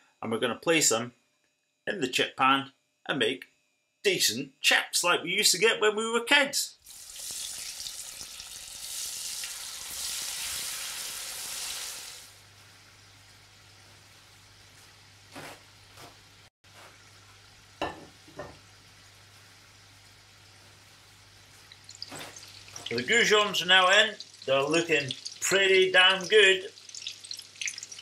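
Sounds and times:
potato chips sizzling in oil: 0:06.8 - 0:28.0.

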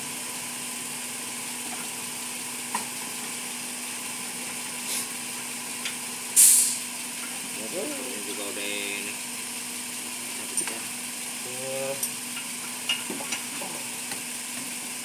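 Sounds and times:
steady hiss: 0:06.3 - 0:06.9.

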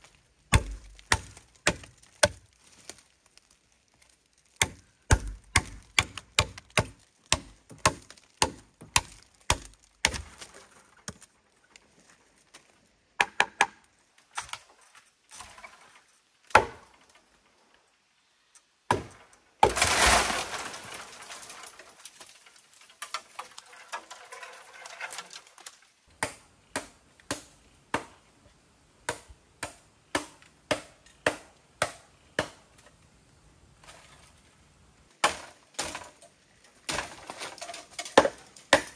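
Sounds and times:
bamboo crashing through leaves: 0:00.0 - 0:11.2, 0:18.9 - 0:25.9, 0:35.2 - 0:38.9
machete chopping bamboo: 0:00.5 - 0:03.0, 0:04.6 - 0:10.5, 0:13.2 - 0:13.8, 0:16.5 - 0:16.9, 0:18.9 - 0:19.9, 0:26.2 - 0:28.1, 0:29.1 - 0:32.6, 0:35.2 - 0:36.2, 0:36.9 - 0:38.9.

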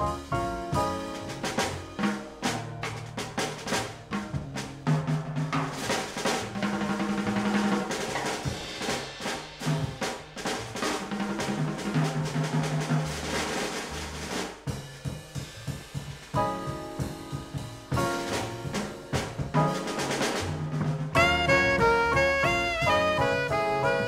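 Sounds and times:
jazz quartet: 0:00.0 - 0:24.0
snare drum rolls: 0:00.0 - 0:24.0
low held notes: 0:21.1 - 0:24.0.

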